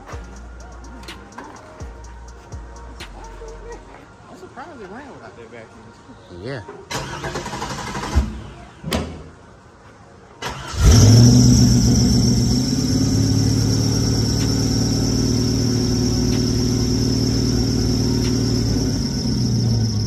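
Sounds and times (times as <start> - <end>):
car engine cranking and idling: 6.9 - 8.6, 10.4 - 20.0
high whine: 10.8 - 20.0.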